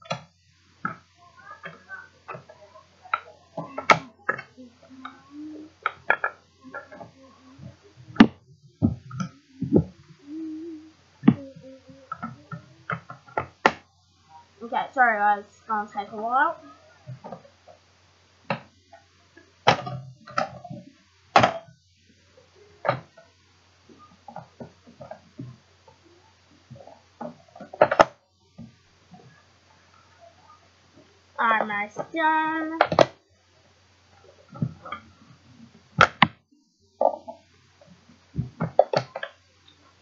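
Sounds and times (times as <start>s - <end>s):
plastic parts knocking and clicking: 5.8s - 9.9s, 19.6s - 21.6s, 26.7s - 28.7s, 32.8s - 33.2s, 36.0s - 36.4s, 38.4s - 39.4s
sharp plastic clicks and knocks: 32.8s - 33.2s, 36.0s - 36.4s, 38.4s - 39.4s.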